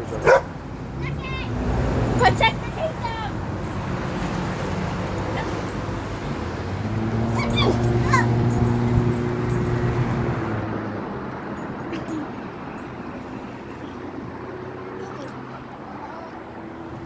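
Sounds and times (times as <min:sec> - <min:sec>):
dog whining and yipping: 0:07.3 - 0:08.7.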